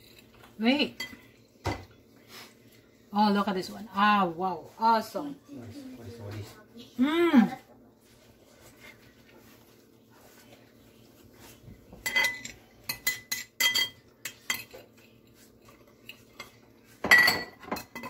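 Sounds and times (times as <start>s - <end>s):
cutlery clinking on plate: 12.0s - 15.0s, 16.1s - 18.0s.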